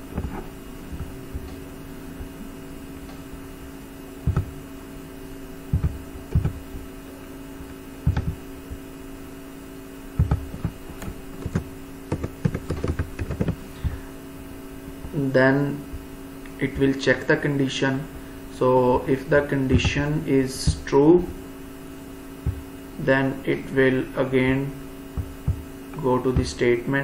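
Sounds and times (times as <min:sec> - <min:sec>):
steady electrical hum: 0:00.0 - 0:27.0
keyboard keystrokes: 0:10.2 - 0:13.6.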